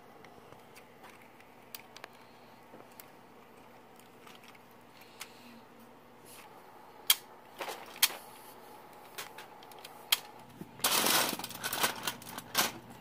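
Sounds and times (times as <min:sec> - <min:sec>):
plastic parts rubbing: 0:00.6 - 0:05.4, 0:07.6 - 0:13.0.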